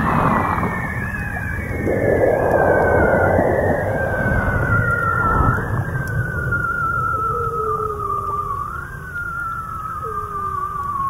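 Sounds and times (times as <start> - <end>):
dense low rumble: 0.0 - 7.3
hiss: 0.0 - 11.0
long wavering underwater call: 0.0 - 11.0.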